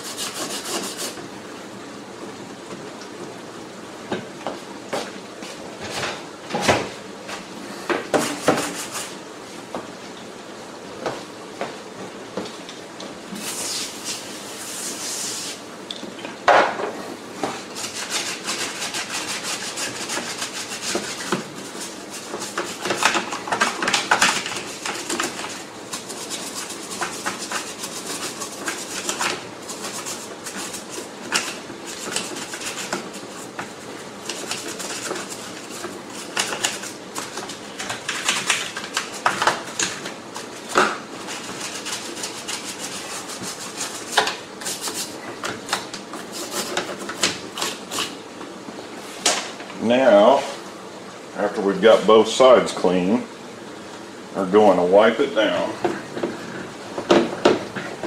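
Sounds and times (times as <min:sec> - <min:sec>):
toothbrush scrubbing plastic: 0:00.0 - 0:01.2, 0:08.2 - 0:09.2, 0:17.7 - 0:48.2.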